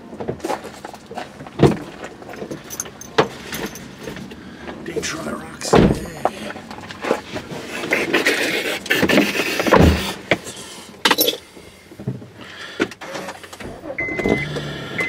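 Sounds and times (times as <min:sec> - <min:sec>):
car warning chime beeping: 0:14.0 - 0:15.0.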